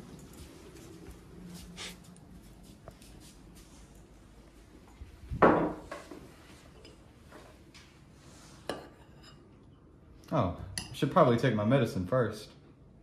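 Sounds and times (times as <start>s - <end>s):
tableware knocking on wooden table: 5.4s - 6.2s.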